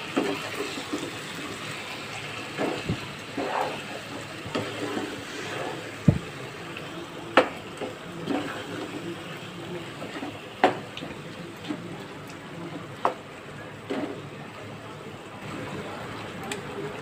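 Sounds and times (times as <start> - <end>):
meat sizzling in hot oil: 0.0 - 11.2.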